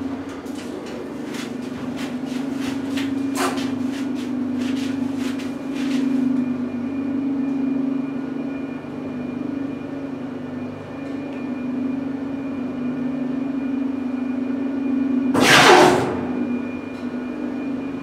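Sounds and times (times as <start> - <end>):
elevator drive hum: 0.0 - 18.0
faint high whine: 6.2 - 18.0.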